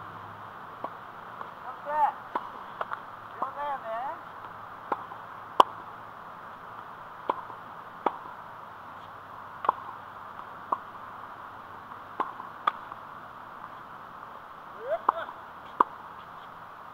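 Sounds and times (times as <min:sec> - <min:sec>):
steady outdoor hiss: 0:00.0 - 0:16.9
tennis ball hit by racket: 0:00.8 - 0:01.5, 0:02.3 - 0:03.6, 0:04.8 - 0:05.9, 0:07.2 - 0:08.4, 0:09.6 - 0:10.0, 0:10.7 - 0:10.9, 0:12.2 - 0:13.0, 0:15.0 - 0:16.0.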